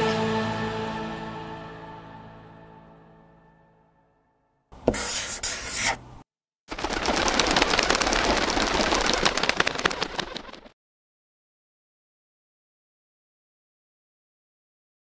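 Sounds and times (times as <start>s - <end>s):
music: 0.0s - 4.7s.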